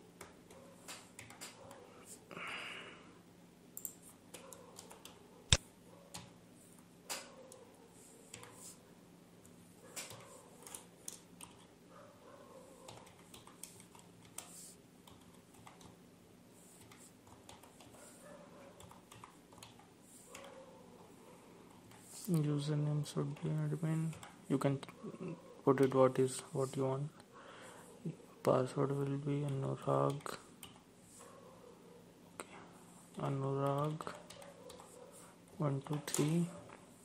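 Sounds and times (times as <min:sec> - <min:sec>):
computer keyboard typing: 0:00.2 - 0:01.9, 0:03.8 - 0:05.2, 0:08.3 - 0:08.7, 0:09.9 - 0:11.7, 0:12.8 - 0:16.0, 0:16.8 - 0:18.1, 0:18.7 - 0:20.6, 0:23.2 - 0:24.8, 0:29.0 - 0:30.9, 0:33.2 - 0:36.5.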